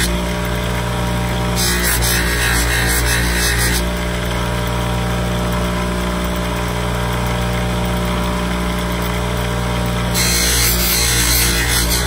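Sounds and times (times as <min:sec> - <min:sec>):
bench buffer motor humming: 0:00.0 - 0:12.0.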